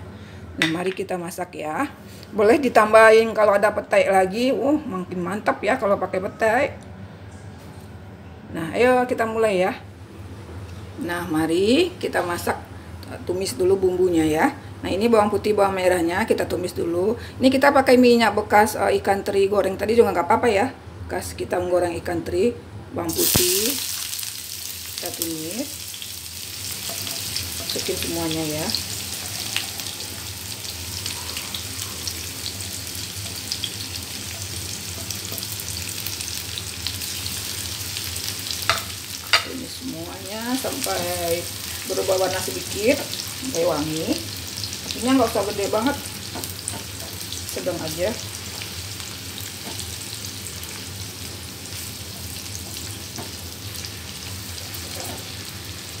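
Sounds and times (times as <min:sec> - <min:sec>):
garlic sizzling in hot oil: 0:23.1 - 0:56.0
spatula stirring in pan: 0:26.4 - 0:28.1.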